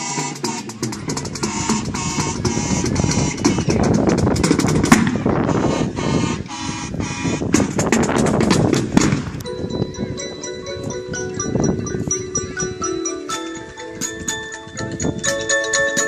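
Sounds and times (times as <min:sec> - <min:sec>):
marching band playing: 0:00.0 - 0:14.8
snare and bass drum strikes: 0:00.2 - 0:05.3, 0:07.5 - 0:09.4
glockenspiel chimes: 0:09.4 - 0:16.0.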